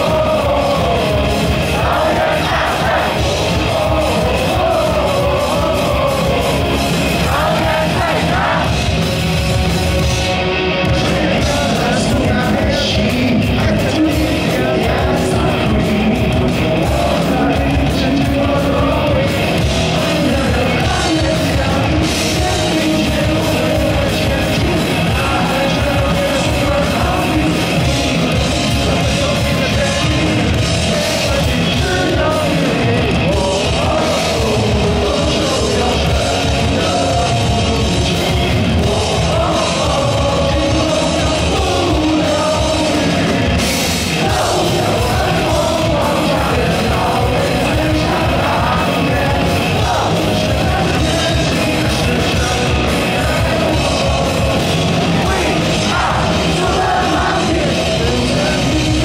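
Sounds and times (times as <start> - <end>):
man singing into a microphone: 0.0 - 8.8, 10.8 - 59.0
drums: 0.0 - 59.0
electric guitars: 0.0 - 59.0.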